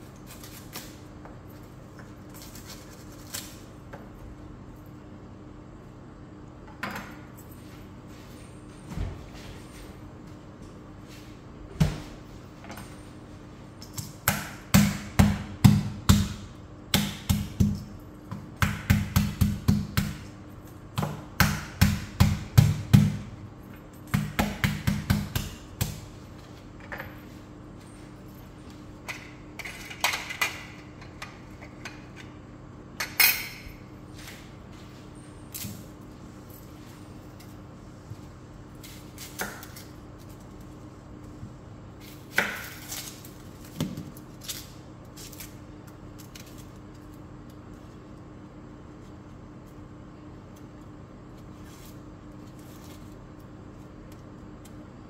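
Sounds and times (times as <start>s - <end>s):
knife chopping on plastic board: 24.1s - 26.0s.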